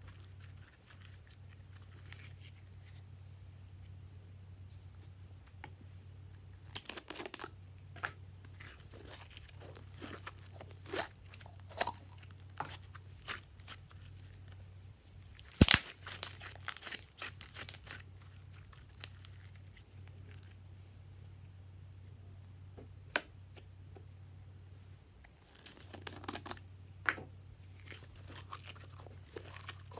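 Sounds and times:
slime squelching and popping: 0:15.3 - 0:19.3.

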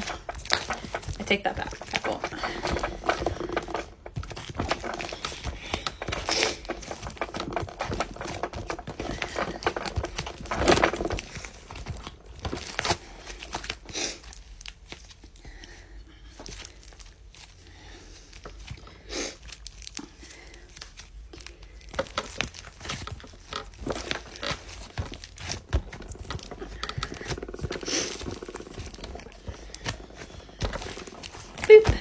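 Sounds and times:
slime clicking and crackling: 0:00.0 - 0:15.5, 0:16.4 - 0:32.0
slime squishing: 0:00.0 - 0:32.0.

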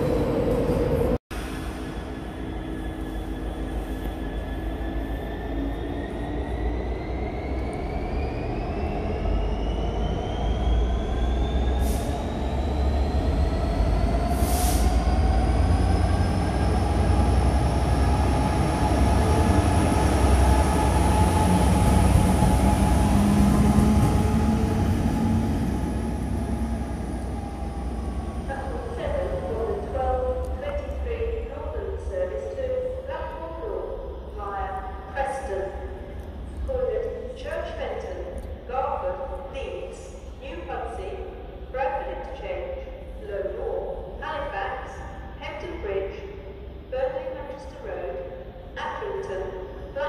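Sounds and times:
diesel locomotive engine under load: 0:00.0 - 0:32.2.

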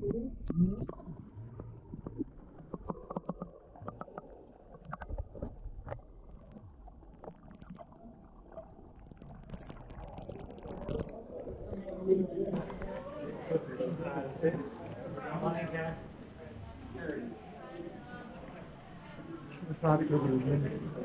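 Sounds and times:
small clicks and knocks underwater: 0:00.0 - 0:13.7
muffled underwater rumble: 0:00.0 - 0:19.0.

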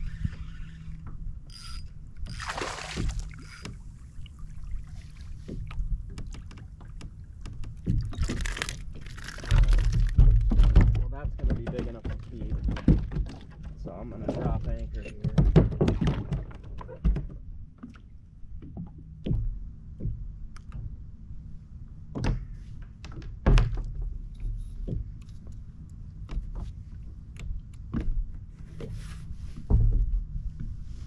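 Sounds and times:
knocks on kayak hull: 0:15.3 - 0:17.4.

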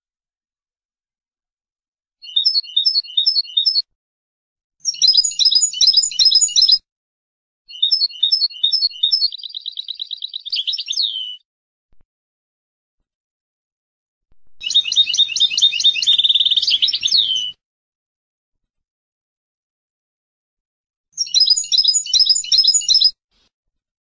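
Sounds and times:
goldfinch singing: 0:02.2 - 0:03.8, 0:04.8 - 0:06.8, 0:07.7 - 0:11.4, 0:14.6 - 0:17.6, 0:21.2 - 0:23.1.

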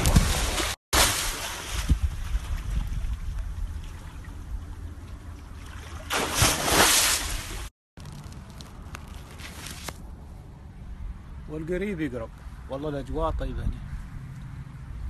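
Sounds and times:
crocodile splashing water: 0:00.0 - 0:02.5, 0:05.6 - 0:07.7.

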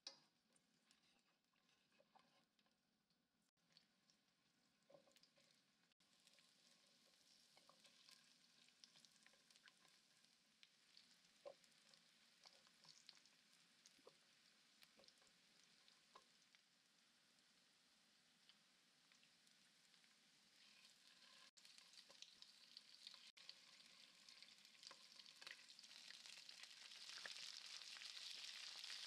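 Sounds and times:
garlic sizzling in oil: 0:04.8 - 0:29.0
small pops and crackles: 0:06.2 - 0:16.7, 0:18.4 - 0:29.0.

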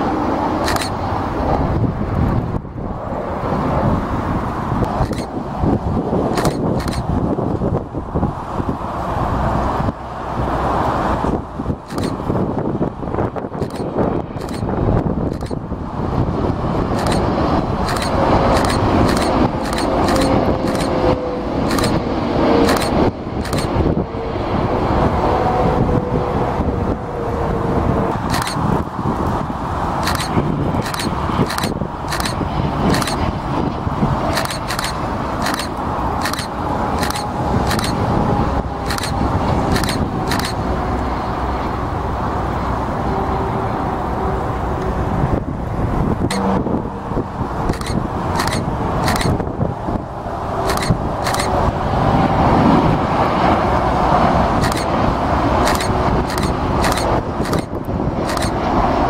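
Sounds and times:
jet engines rumbling: 0:00.0 - 0:59.0
wind buffeting microphone: 0:00.0 - 0:59.0
sharp clicks: 0:00.6 - 0:01.0, 0:04.8 - 0:05.3, 0:06.3 - 0:07.1, 0:11.8 - 0:12.2, 0:13.6 - 0:14.7, 0:15.3 - 0:15.6, 0:16.9 - 0:21.0, 0:21.6 - 0:22.0, 0:22.6 - 0:23.8, 0:28.2 - 0:28.6, 0:30.0 - 0:33.3, 0:34.3 - 0:38.0, 0:38.8 - 0:40.6, 0:47.7 - 0:49.4, 0:50.6 - 0:51.6, 0:54.6 - 0:55.0, 0:55.6 - 0:58.6.

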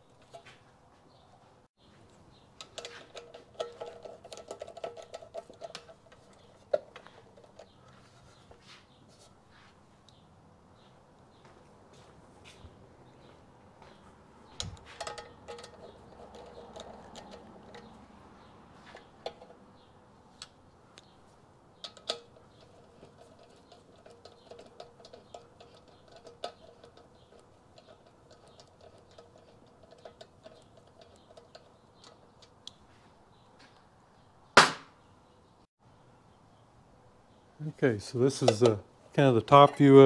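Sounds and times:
clicks of hand tools and parts: 0:00.1 - 0:00.7, 0:02.1 - 0:08.7, 0:14.5 - 0:21.2, 0:21.8 - 0:32.8, 0:38.2 - 0:40.0
sharp knocks: 0:34.6 - 0:35.0.

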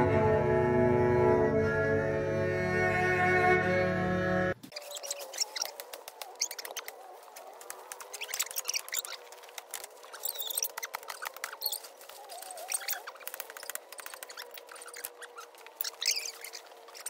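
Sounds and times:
birds chirping: 0:04.6 - 0:17.0
dry leaves and twigs crackling: 0:04.6 - 0:17.0.

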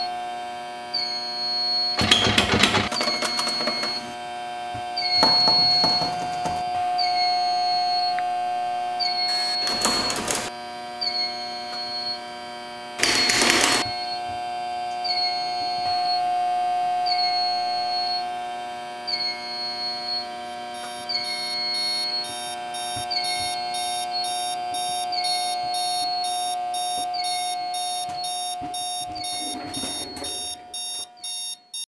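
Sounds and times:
steady high hum: 0:03.5 - 0:31.1
short electronic beep: 0:19.2 - 0:31.8
fast electronic pulsing: 0:20.8 - 0:31.1.

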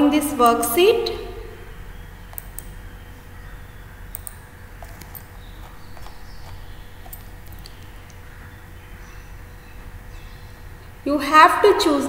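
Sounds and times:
low steady hum: 0:00.0 - 0:12.0
short clicks: 0:02.3 - 0:02.8, 0:04.1 - 0:05.3.

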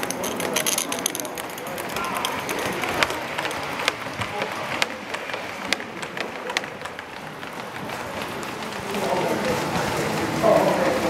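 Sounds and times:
model train clicking on track: 0:00.0 - 0:11.0.

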